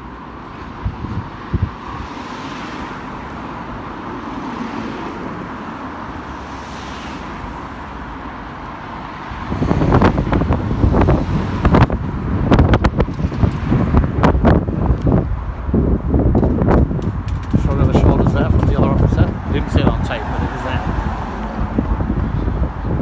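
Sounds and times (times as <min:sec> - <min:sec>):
street traffic: 0:00.0 - 0:23.0
wind buffeting microphone: 0:00.6 - 0:02.3, 0:09.2 - 0:23.0
sharp knocks and thumps: 0:16.3 - 0:19.0.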